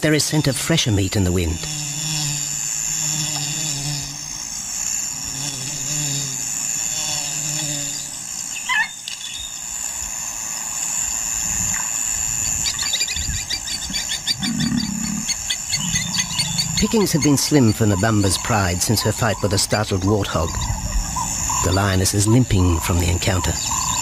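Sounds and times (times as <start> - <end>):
insect chorus: 0.0 - 24.0
quick chattering calls: 12.4 - 24.0.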